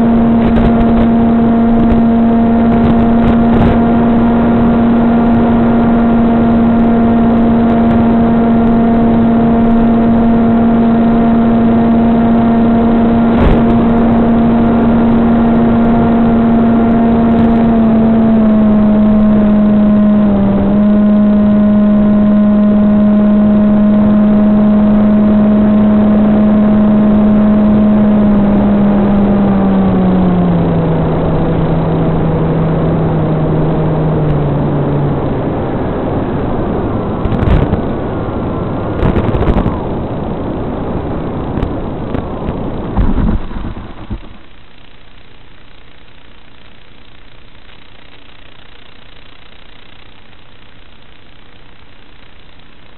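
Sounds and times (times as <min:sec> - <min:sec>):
electric motor propeller whine: 0:00.0 - 0:45.1
rushing noise: 0:28.2 - 0:52.9.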